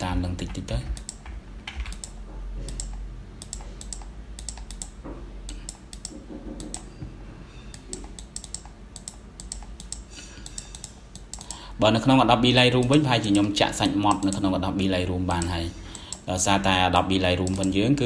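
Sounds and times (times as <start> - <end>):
low steady hum: 0.0 - 18.0
keyboard and mouse clicking: 0.4 - 6.9, 7.7 - 11.6, 12.8 - 14.5, 17.4 - 17.8.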